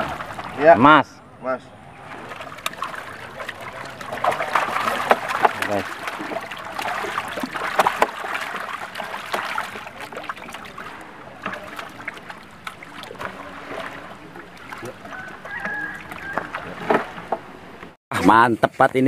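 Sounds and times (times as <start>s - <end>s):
fish splashing in water: 0.0s - 0.7s, 1.9s - 17.4s.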